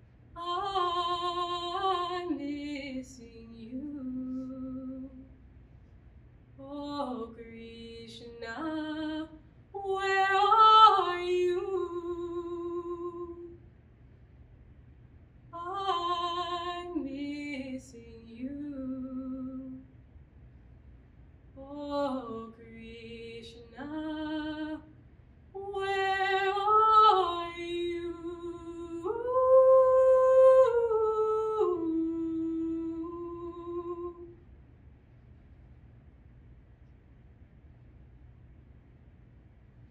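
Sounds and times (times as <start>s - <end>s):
woman singing unaccompanied: 0.4s - 5.3s, 6.6s - 13.6s, 15.6s - 19.8s, 21.6s - 24.9s, 25.5s - 34.4s.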